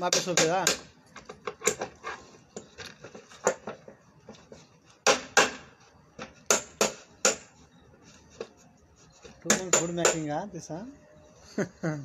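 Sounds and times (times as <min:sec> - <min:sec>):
wooden parts knocking and clattering: 0:00.1 - 0:07.5.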